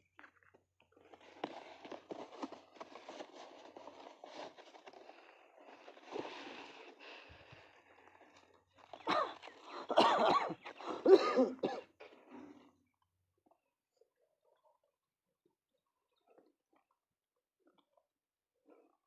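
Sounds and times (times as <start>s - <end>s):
packaging rustling: 1.0s - 7.0s
person coughing: 9.1s - 11.9s.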